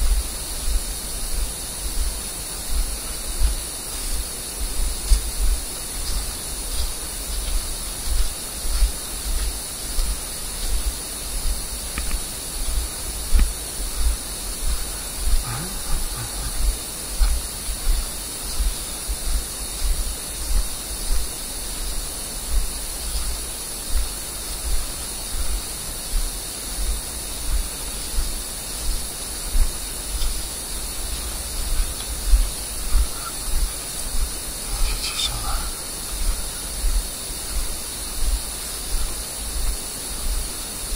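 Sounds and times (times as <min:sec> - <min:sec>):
footsteps on boggy ground: 0:00.0 - 0:40.5
steady recording hiss: 0:00.0 - 0:40.9.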